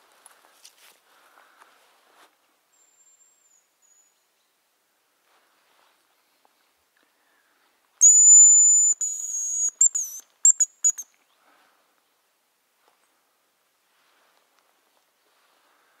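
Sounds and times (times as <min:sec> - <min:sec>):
high decoy whistle: 0:08.0 - 0:11.0.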